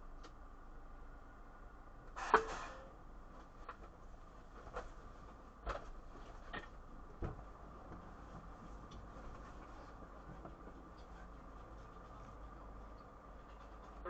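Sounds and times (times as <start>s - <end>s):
low steady hum: 0.0s - 14.0s
faint knocks and clunks: 3.4s - 13.9s.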